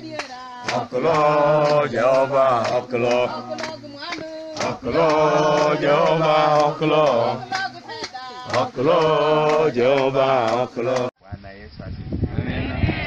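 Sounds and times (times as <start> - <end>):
hands clapping the beat: 0.0 - 11.1
group singing worship chorus: 0.0 - 11.2.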